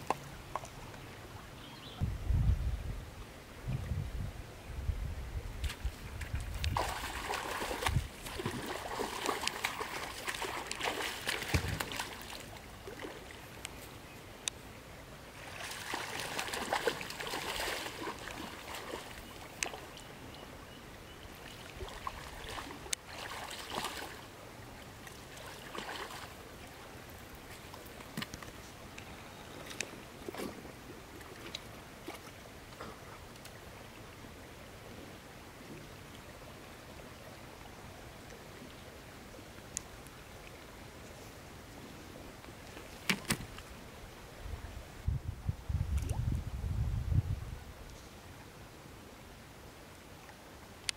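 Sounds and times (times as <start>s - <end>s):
fish thrashing and splashing water: 6.6s - 13.2s, 15.5s - 19.8s.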